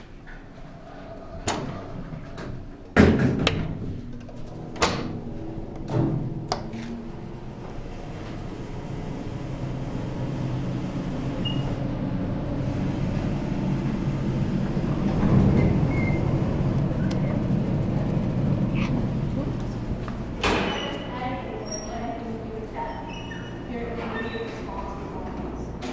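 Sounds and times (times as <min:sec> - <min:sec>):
elevator low hum: 0:00.0 - 0:25.9
elevator knocks and clunks: 0:12.8 - 0:19.4.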